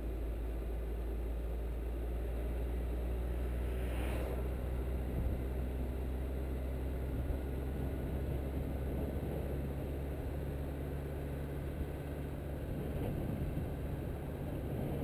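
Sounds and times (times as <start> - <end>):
wind and road noise: 0.0 - 15.0
whoosh passing parked car: 3.1 - 6.1.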